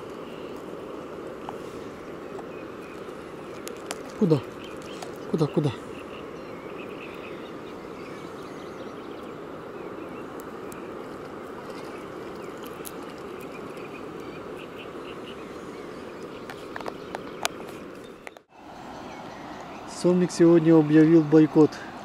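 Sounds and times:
riverside background noise: 0.0s - 22.0s.

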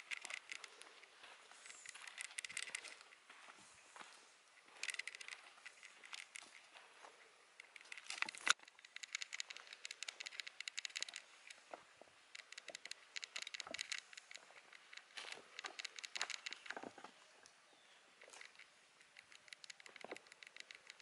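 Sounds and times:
footsteps crunching on stone and leaves: 0.0s - 7.2s, 13.4s - 17.2s.

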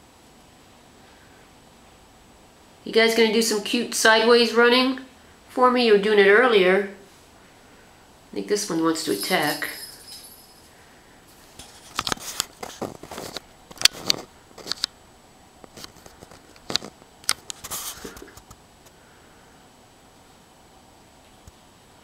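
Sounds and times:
kittens scratching and scuffling: 11.4s - 14.9s, 15.7s - 18.6s.

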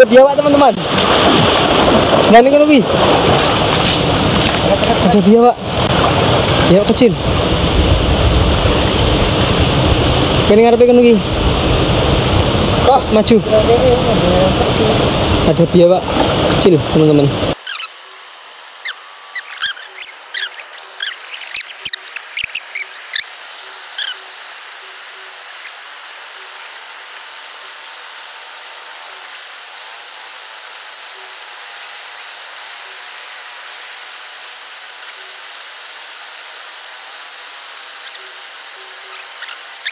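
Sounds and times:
high squeaky chirps: 17.6s - 18.0s, 18.7s - 24.4s, 25.6s - 26.9s, 38.0s - 38.4s, 39.0s - 39.9s.

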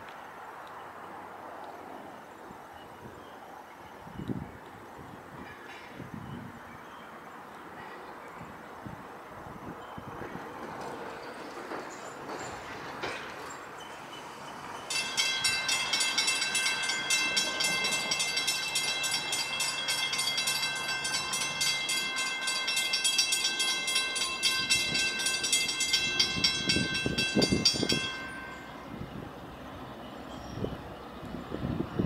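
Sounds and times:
train rumble: 7.6s - 32.0s
crossing bell ringing: 9.7s - 31.2s.

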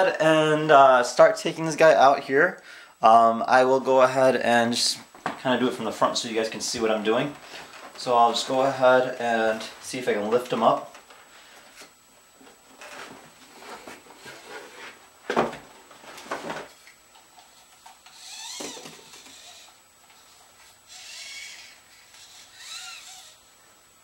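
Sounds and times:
short squeaks: 20.9s - 23.4s.

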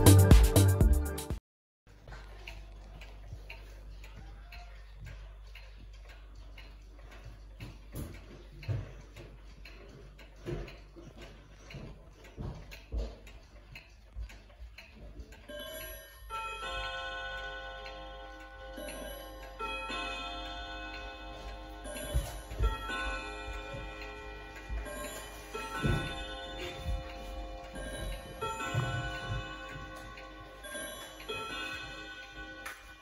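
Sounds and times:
wall clocks ticking: 1.9s - 33.0s
clock chime rods ringing: 15.5s - 33.0s.

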